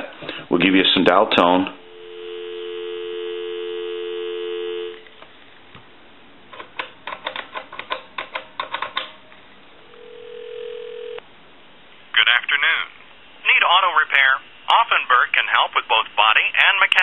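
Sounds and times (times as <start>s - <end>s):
steady telephone line tone: 1.7s - 5.1s, 9.8s - 11.2s
telephone dial tone: 2.0s - 5.1s, 10.0s - 11.2s.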